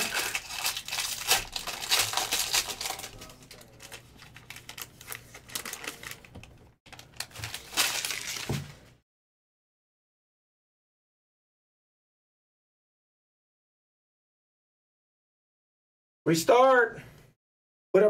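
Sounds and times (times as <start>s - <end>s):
foil wrapper crinkling and tearing: 0.0s - 9.0s.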